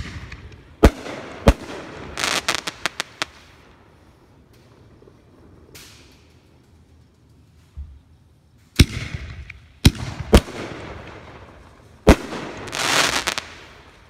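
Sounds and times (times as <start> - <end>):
firework shells bursting: 0.0 - 3.7, 8.7 - 14.0
firework crackle: 0.0 - 7.7, 8.6 - 14.0.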